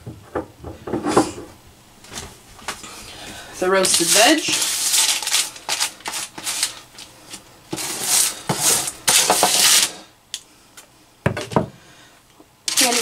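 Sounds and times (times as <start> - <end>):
scraper scraping metal pan: 3.8 - 6.8, 7.7 - 10.0, 12.7 - 13.0.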